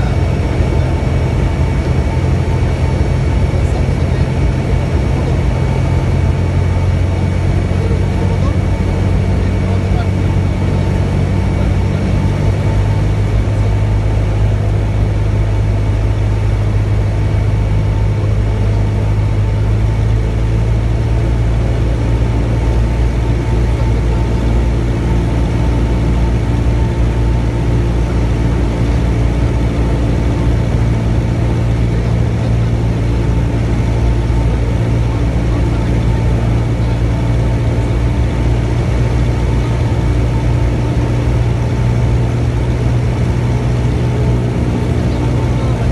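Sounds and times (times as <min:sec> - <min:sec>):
propeller plane engine droning: 0:00.0 - 0:45.9.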